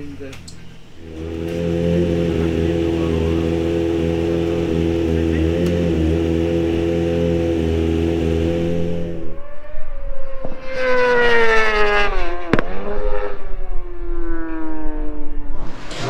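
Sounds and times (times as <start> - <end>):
held music chord: 0.0 - 9.3
racing motorcycles passing: 0.0 - 15.5
sharp crack: 12.4 - 13.0.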